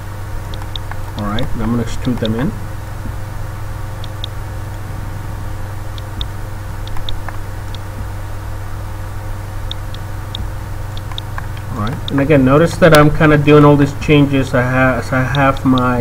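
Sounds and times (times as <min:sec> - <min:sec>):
low electrical hum: 0:00.0 - 0:16.0
computer mouse clicks: 0:00.5 - 0:02.4, 0:06.0 - 0:07.8, 0:09.7 - 0:12.2.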